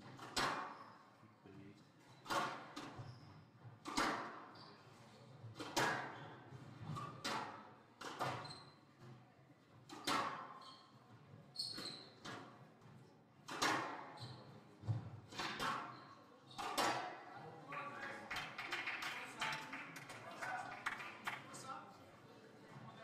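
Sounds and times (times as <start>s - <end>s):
squash ball hits echoing: 13.5s - 14.1s, 16.6s - 17.2s.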